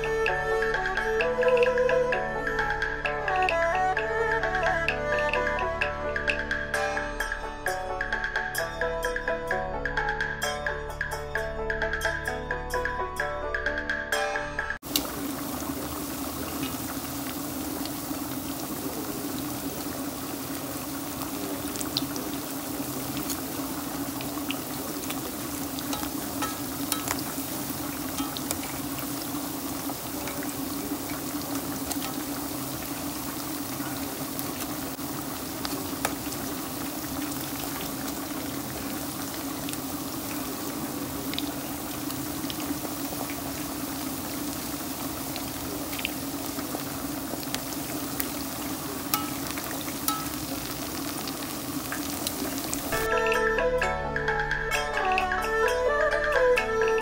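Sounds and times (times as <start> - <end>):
oil popping and crackling: 0.0 - 6.8, 14.8 - 53.4
chicken deep-frying in oil: 0.0 - 11.2, 13.8 - 53.6.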